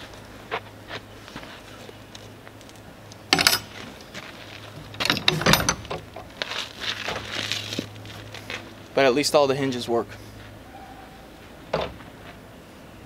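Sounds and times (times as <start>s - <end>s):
metal latch clicking and rattling: 3.3s - 3.7s, 4.9s - 6.3s.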